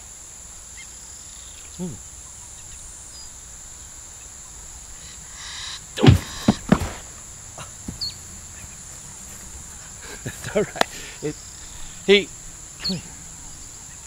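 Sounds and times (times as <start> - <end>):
insects chirring: 0.0 - 14.0
body thumping to ground: 6.0 - 8.1.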